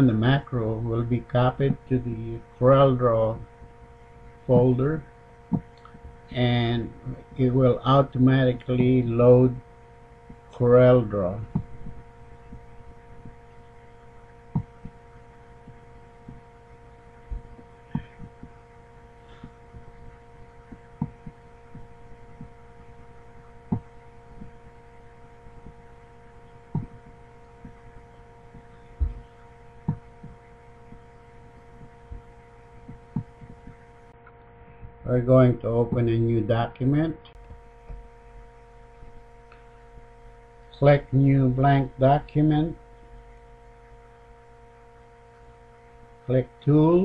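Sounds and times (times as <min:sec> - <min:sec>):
background hum of held tones: 0:00.0 - 0:47.0
soft clicks and thumps: 0:11.5 - 0:13.4, 0:14.5 - 0:15.0, 0:17.3 - 0:18.6, 0:19.4 - 0:22.6, 0:23.7 - 0:24.6, 0:26.7 - 0:27.9, 0:31.8 - 0:35.0.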